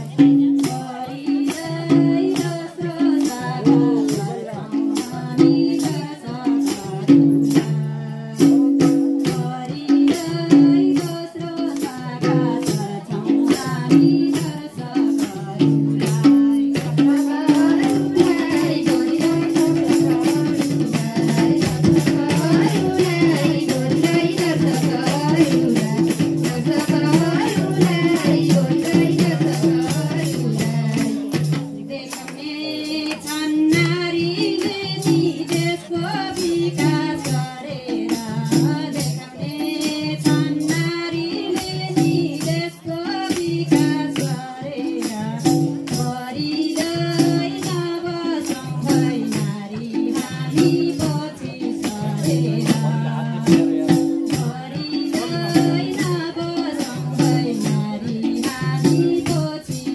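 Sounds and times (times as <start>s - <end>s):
dance song with percussion: 0.0s - 59.9s
person singing: 11.6s - 38.4s, 48.6s - 59.9s.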